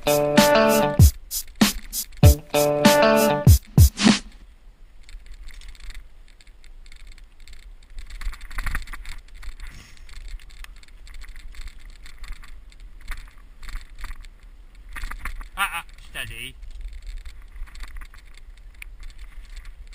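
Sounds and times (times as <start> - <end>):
bike frame rattles and clicks: 4.4 - 19.9.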